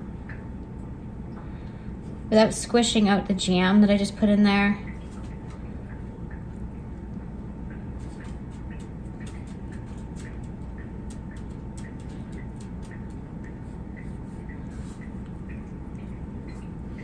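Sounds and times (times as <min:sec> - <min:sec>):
steady low hum: 0:00.0 - 0:17.0
faint ticking: 0:04.8 - 0:17.0.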